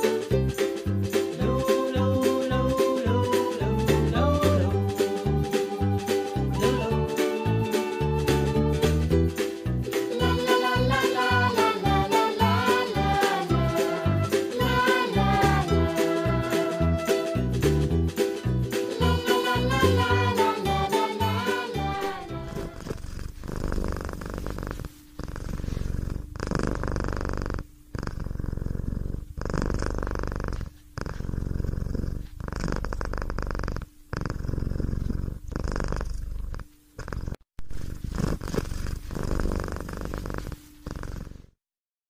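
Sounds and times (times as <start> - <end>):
cat purring: 10.1 - 17.1, 19.0 - 41.6.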